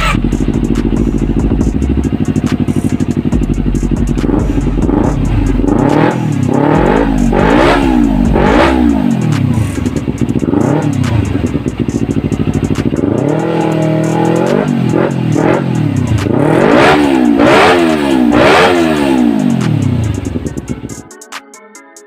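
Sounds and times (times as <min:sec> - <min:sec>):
motorcycle engine revving: 0:00.0 - 0:21.0.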